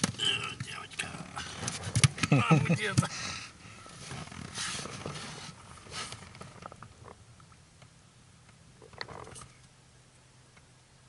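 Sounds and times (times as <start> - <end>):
small clicks and rustles: 3.8 - 9.8.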